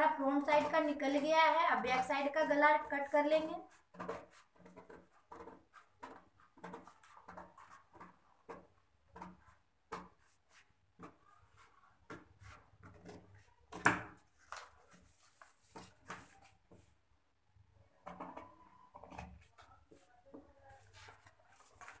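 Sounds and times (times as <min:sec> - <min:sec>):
paper rustling: 0:03.7 - 0:17.0, 0:19.0 - 0:22.0.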